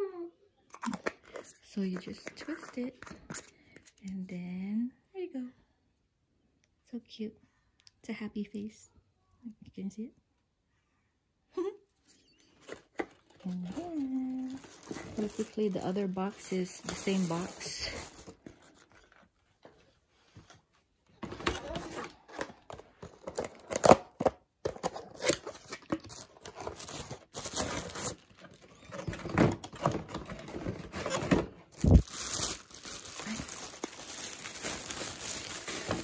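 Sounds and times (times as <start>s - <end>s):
plastic packaging crinkling: 12.7s - 19.5s, 25.0s - 36.0s.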